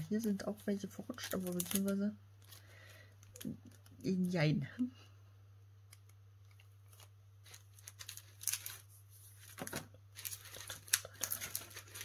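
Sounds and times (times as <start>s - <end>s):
plastic packets crinkling: 0.0s - 4.3s, 6.4s - 12.0s
low electrical hum: 0.0s - 12.0s.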